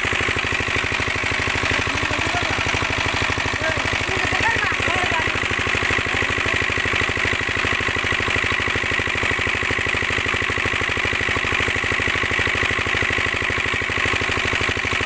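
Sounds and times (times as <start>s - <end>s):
diesel pump engine running: 0.0s - 15.0s
water gushing from pipe: 0.0s - 15.0s.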